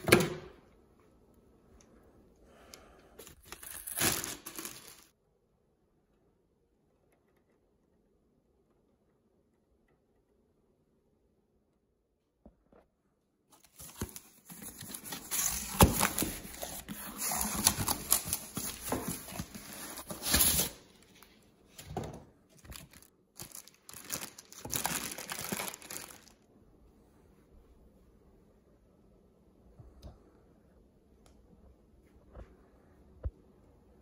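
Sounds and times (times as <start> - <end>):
packaging rustling and crinkling: 3.2 - 5.1, 13.6 - 22.0, 22.6 - 26.4.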